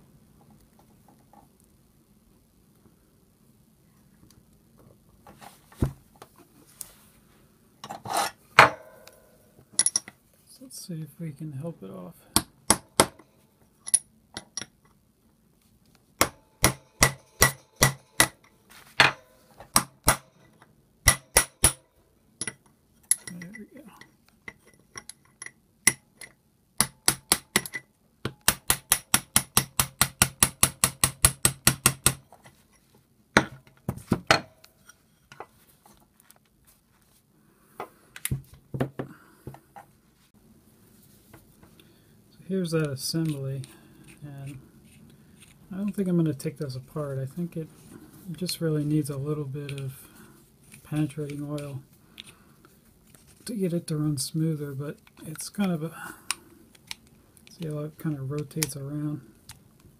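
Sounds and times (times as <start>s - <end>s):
hammer tapping metal punch: 16.2s - 20.5s, 21.1s - 21.8s, 25.0s - 32.2s.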